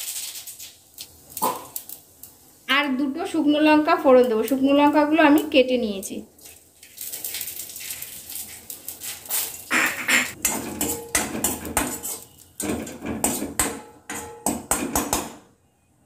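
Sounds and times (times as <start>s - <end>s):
seeds frying in oil: 0.0s - 13.4s
metal spatula scraping a pan: 6.4s - 14.9s.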